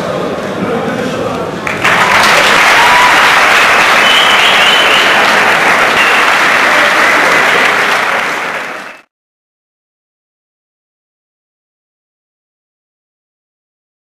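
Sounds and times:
audience clapping: 1.6s - 9.1s.

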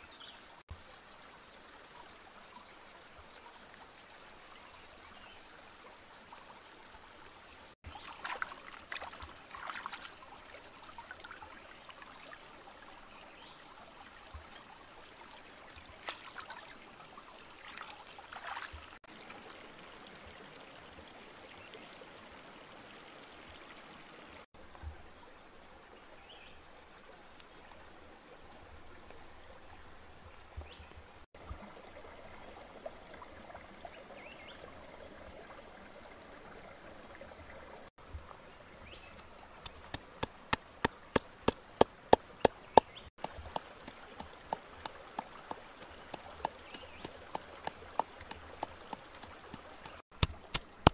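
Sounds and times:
stream trickling over rocks: 0.0s - 50.9s
water splashing: 7.8s - 12.5s, 14.0s - 19.2s, 38.9s - 50.9s.

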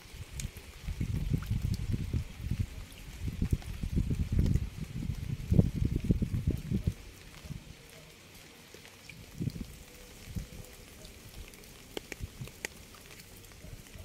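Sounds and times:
rain falling: 0.0s - 14.0s
drops ticking: 11.0s - 13.4s.

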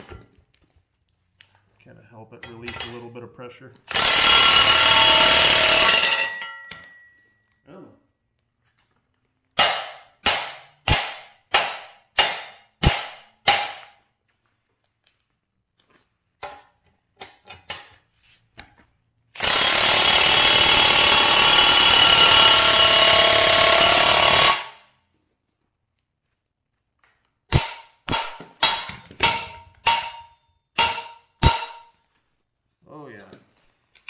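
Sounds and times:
cordless impact wrench running: 3.9s - 6.2s, 19.4s - 24.8s.

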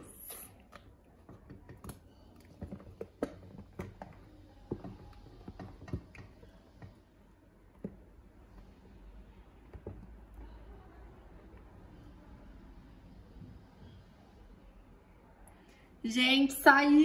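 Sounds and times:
cake mould tapping and clicking: 0.6s - 7.1s.

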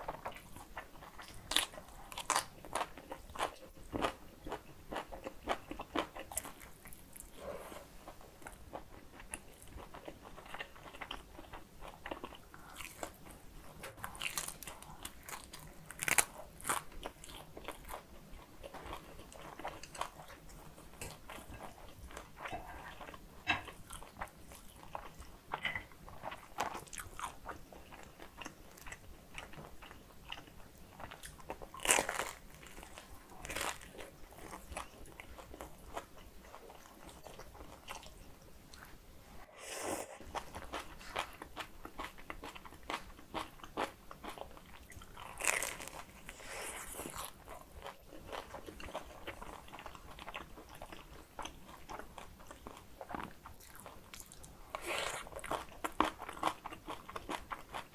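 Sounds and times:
person chewing crunchy food: 0.0s - 57.9s.

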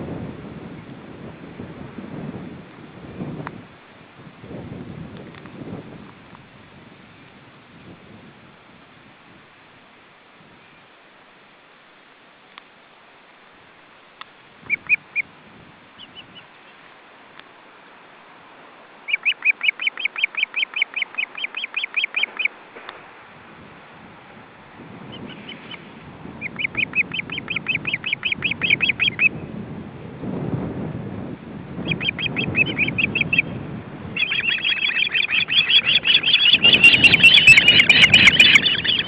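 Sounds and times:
wind on microphone: 0.0s - 10.7s, 14.6s - 16.5s, 23.3s - 39.0s
osprey chirping: 14.7s - 15.2s, 19.1s - 22.5s, 25.1s - 29.3s, 31.8s - 33.5s, 34.2s - 39.0s.

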